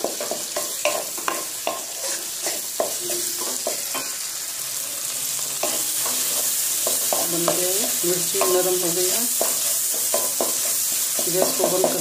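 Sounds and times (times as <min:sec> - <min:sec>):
chillies sizzling in oil: 0:00.0 - 0:12.0
spatula scraping metal pan: 0:00.5 - 0:04.2.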